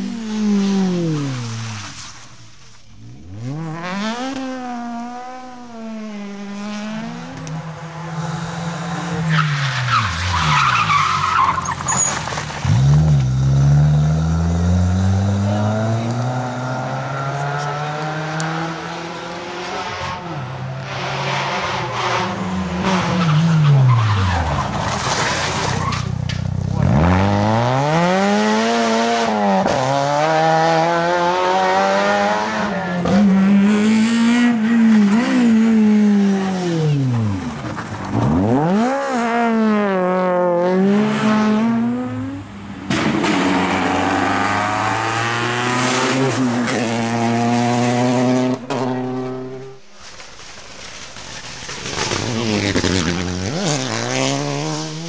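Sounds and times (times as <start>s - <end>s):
rally car engines revving: 0.0s - 55.0s.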